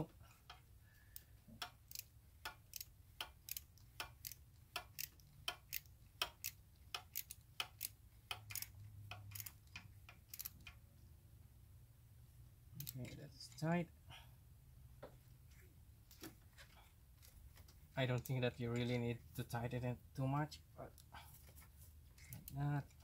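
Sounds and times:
socket ratchet clicking: 0:00.4 - 0:10.8, 0:12.8 - 0:13.1.

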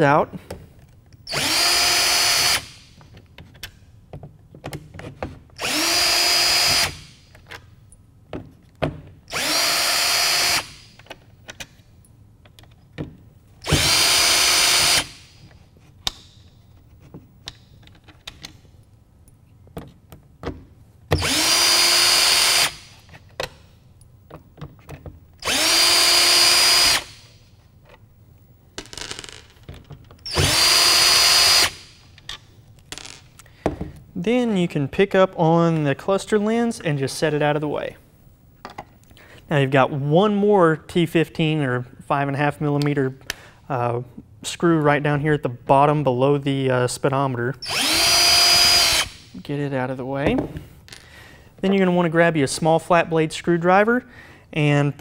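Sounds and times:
cordless drill motor whine: 0:01.3 - 0:02.6, 0:25.4 - 0:27.1, 0:47.6 - 0:49.2.

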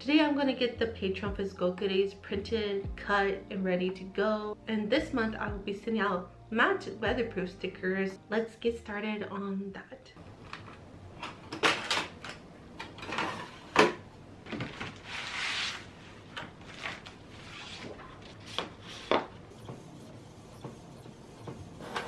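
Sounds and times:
paper and plastic rustling: 0:14.5 - 0:19.3.

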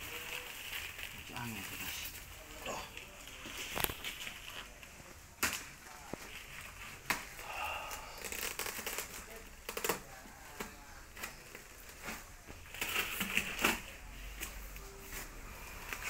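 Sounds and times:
sharp crackles: 0:00.0 - 0:14.8
plastic bag crinkling: 0:00.0 - 0:16.0.

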